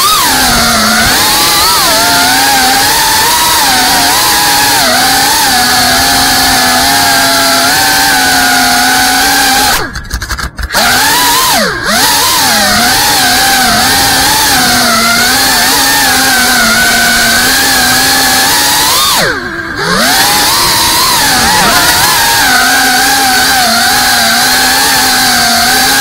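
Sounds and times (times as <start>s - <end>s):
quadcopter motors whining: 0.0s - 26.0s.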